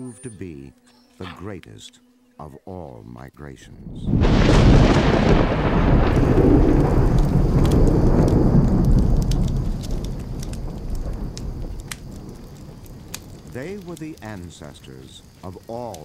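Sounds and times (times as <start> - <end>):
thunder rolling: 3.8 - 14.4
wood fire crackling: 3.8 - 16.0.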